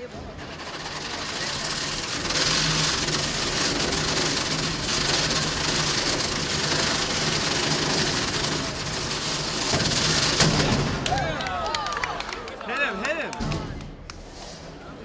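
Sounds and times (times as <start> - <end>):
robot motors whirring: 0.0 - 10.9.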